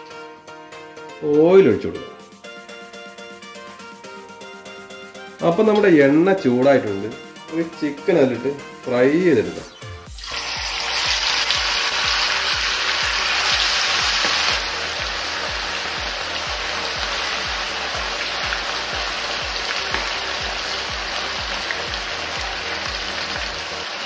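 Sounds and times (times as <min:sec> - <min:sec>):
chicken sizzling in hot oil: 0:10.1 - 0:24.0.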